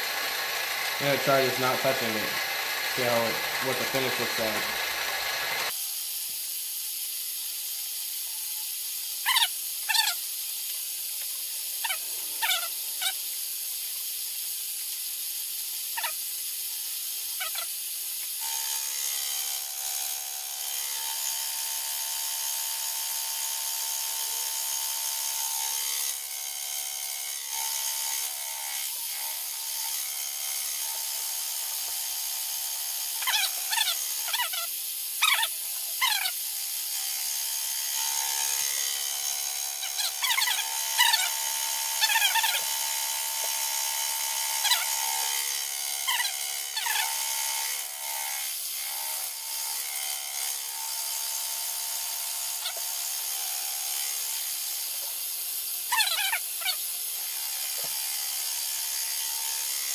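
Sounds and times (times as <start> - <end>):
mill spindle whine: 0.0 - 5.7
cutter screeching: 0.0 - 5.8, 8.3 - 10.3, 11.7 - 13.3, 15.9 - 16.3, 17.2 - 17.8, 32.7 - 55.0, 55.6 - 59.9.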